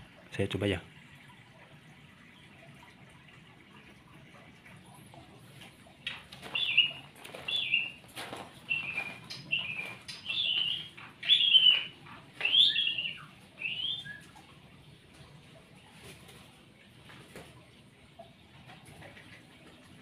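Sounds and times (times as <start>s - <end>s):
bird calling with sliding notes: 6.1s - 8.0s, 8.6s - 14.5s.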